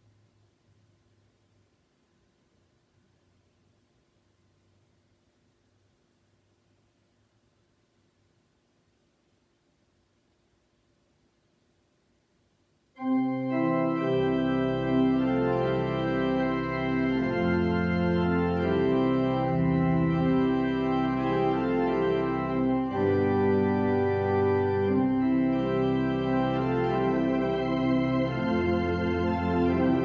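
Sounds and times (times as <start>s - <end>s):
organ playing a hymn: 13.0s - 30.0s.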